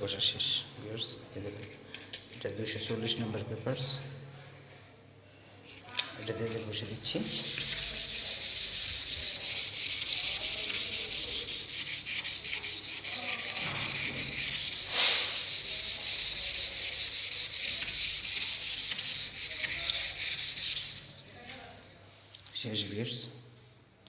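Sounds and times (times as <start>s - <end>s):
sandpaper scrubbing wood: 7.0s - 21.2s.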